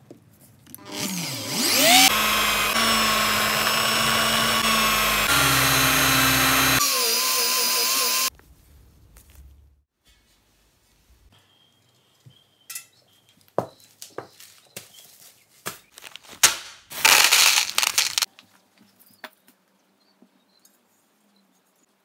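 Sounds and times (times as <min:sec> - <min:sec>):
plastic bag crinkling: 0:15.9 - 0:18.4
handling clicks and knocks: 0:16.0 - 0:18.4
metal parts clinking: 0:17.0 - 0:18.3.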